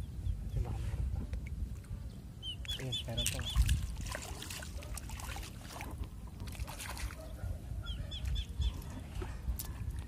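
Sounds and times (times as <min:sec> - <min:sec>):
bird chirping: 0:02.0 - 0:03.8, 0:07.2 - 0:08.9
water splashing from wading: 0:02.6 - 0:07.2.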